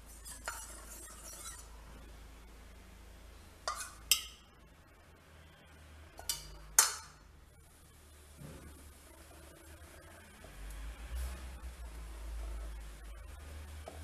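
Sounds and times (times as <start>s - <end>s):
steel kitchenware clinking: 3.7s - 4.4s, 6.2s - 7.2s.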